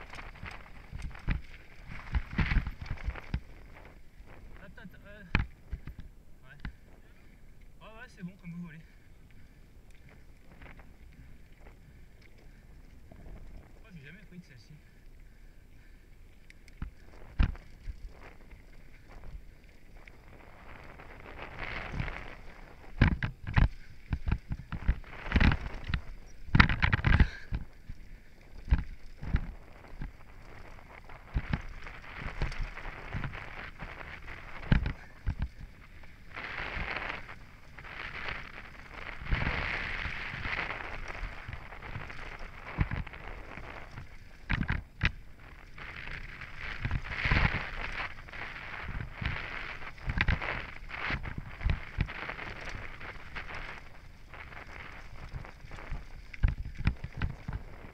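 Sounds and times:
bike knocking and rattling: 0.0 - 4.5, 20.6 - 53.8
bike tyres rolling over gravel: 0.0 - 57.9.

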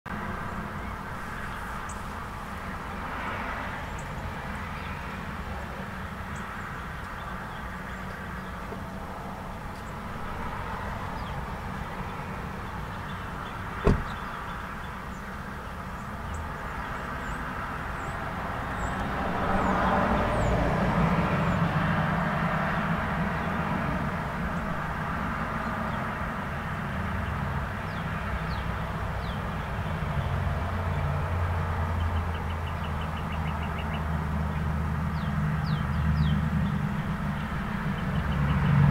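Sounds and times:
road traffic: 0.1 - 38.9
sharp knock: 13.8 - 14.2.

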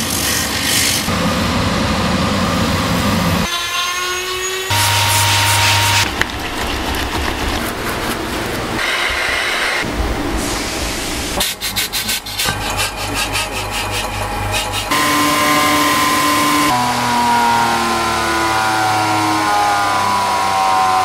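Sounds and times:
workshop machine humming: 4.4 - 21.0.

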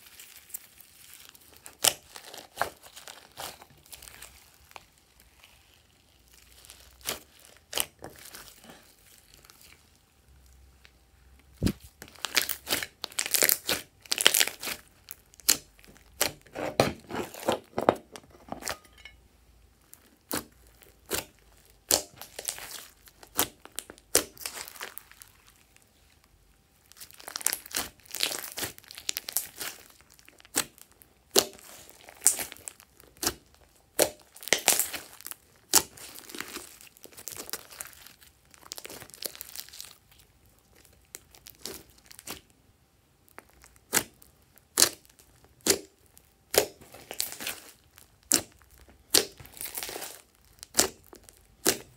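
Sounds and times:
slime squishing: 0.0 - 19.1, 19.8 - 42.6, 43.3 - 51.9
slime crackling pops: 43.9 - 51.9.

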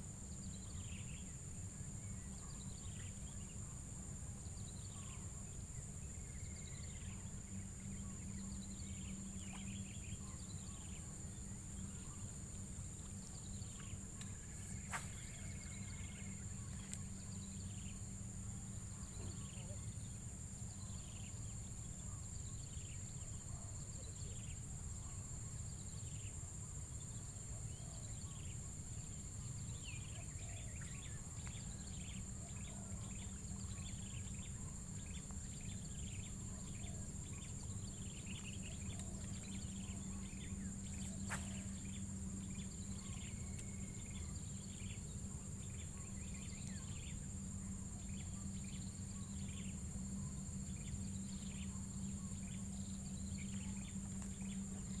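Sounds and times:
low steady rumble: 0.0 - 55.0
high-pitched insect drone: 0.2 - 23.2, 28.1 - 55.0
bird chirps: 13.4 - 18.0, 32.5 - 45.0.

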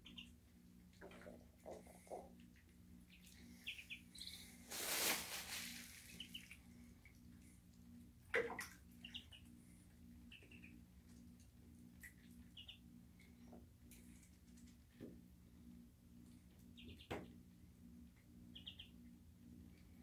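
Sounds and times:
ducklings peeping: 0.0 - 7.7, 8.3 - 14.8, 16.6 - 17.4, 18.4 - 19.1.

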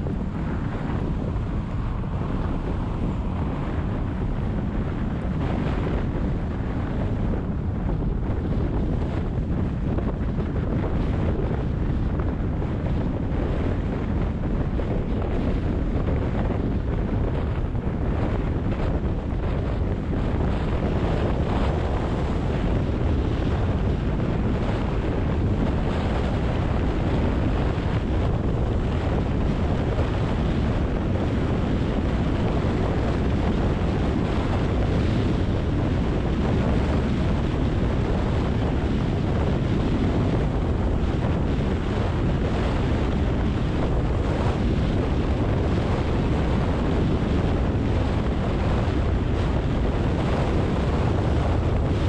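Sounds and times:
car driving on wet road: 0.0 - 7.8.

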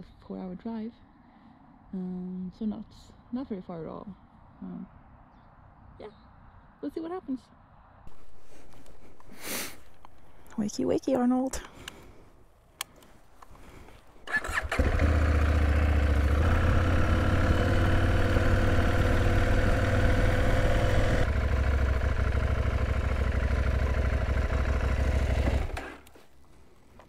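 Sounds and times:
motorcycle engine running: 14.3 - 26.2.

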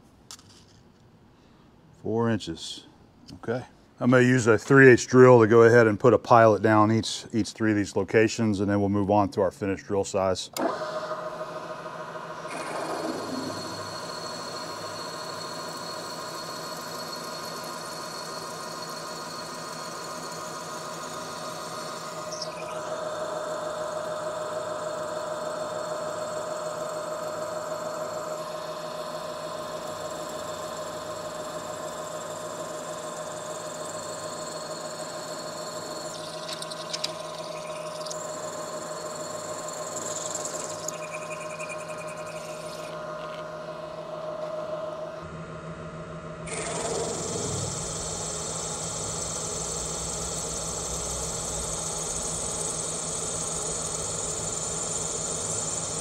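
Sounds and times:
milling machine spindle whining: 10.6 - 45.3, 46.5 - 56.0
drill boring into metal: 12.4 - 41.1, 46.5 - 56.0.

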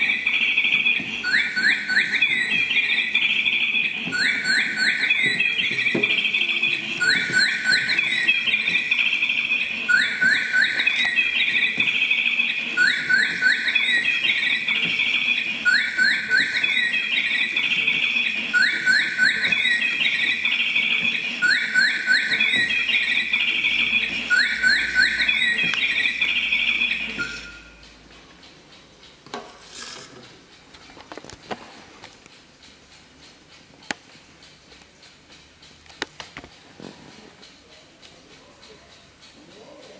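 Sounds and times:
electronic birdsong alarm: 0.0 - 27.9.

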